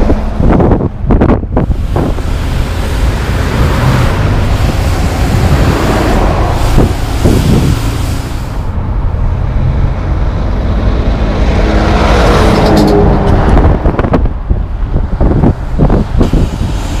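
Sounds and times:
truck diesel engine passing: 0.0 - 17.0.

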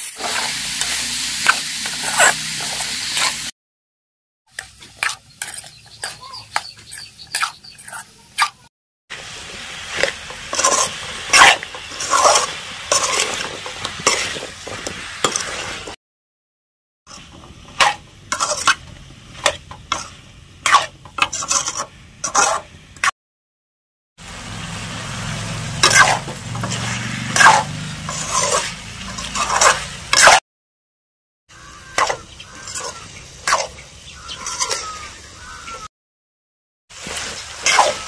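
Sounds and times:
frying sizzle: 0.0 - 3.5, 9.1 - 16.0, 17.1 - 23.1, 24.2 - 30.4, 31.5 - 35.8, 36.9 - 38.0
metal spatula scraping a pan: 0.0 - 3.5, 4.5 - 8.6, 9.2 - 16.0, 17.1 - 23.1, 25.1 - 30.4, 31.6 - 35.7, 37.0 - 38.0.

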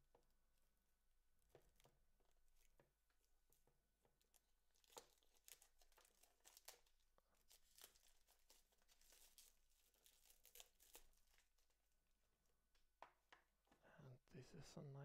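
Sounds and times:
plastic wrap crinkling and tearing: 4.1 - 11.9.

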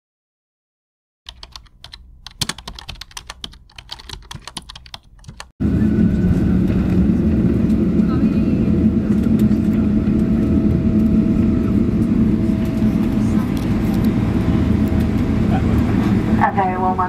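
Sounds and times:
keyboard typing: 1.3 - 5.5
jet airliner roar from cabin: 5.6 - 17.0
low hum: 5.6 - 17.0.

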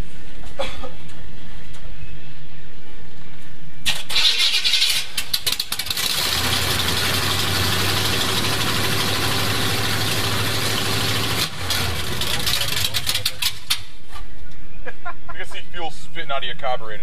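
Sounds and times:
engine starting and idling: 3.8 - 13.9.

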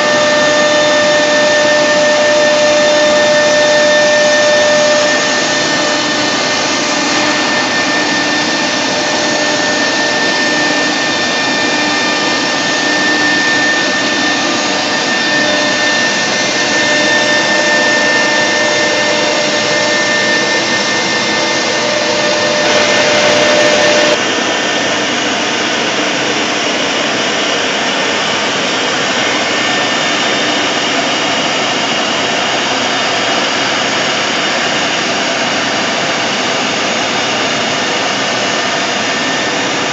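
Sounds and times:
rough cutting sound: 0.0 - 24.2
router spindle whining: 0.0 - 39.9.

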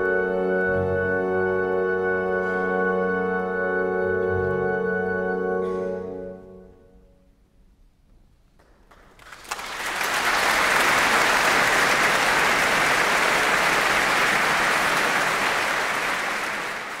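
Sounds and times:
audience applauding: 8.9 - 17.0.

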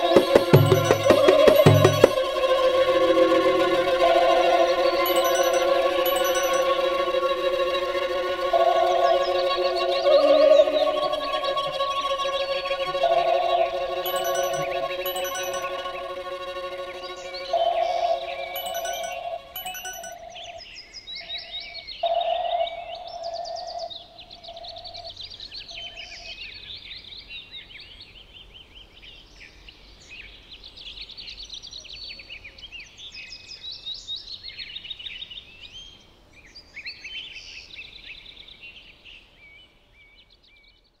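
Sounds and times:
steady held tone: 0.0 - 2.4, 5.1 - 7.2, 14.1 - 16.6, 18.3 - 20.2.

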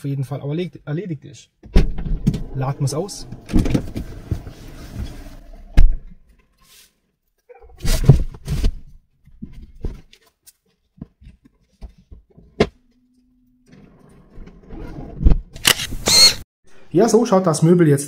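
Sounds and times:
sharp click: 15.6 - 16.4.

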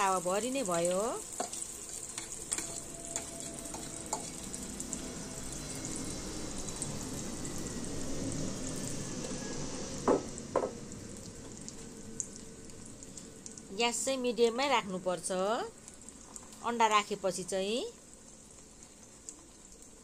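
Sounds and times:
egg frying in oil sizzling: 0.0 - 20.0
sharp knocks: 10.1 - 10.8.

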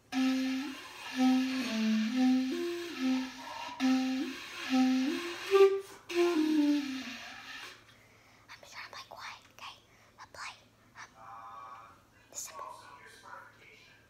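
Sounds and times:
clarinet playing a tune: 0.0 - 7.7.

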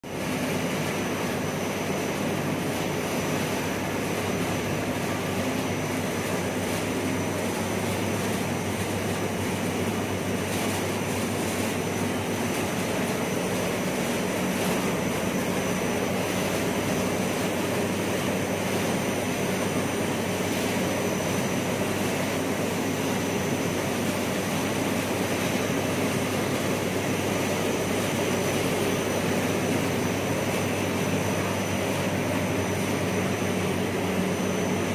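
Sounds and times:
faint high whine: 26.6 - 34.9.

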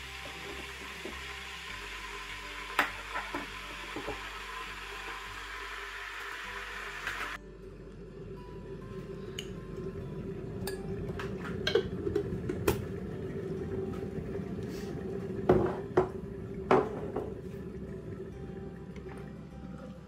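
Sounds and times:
steady hum: 6.4 - 20.0.

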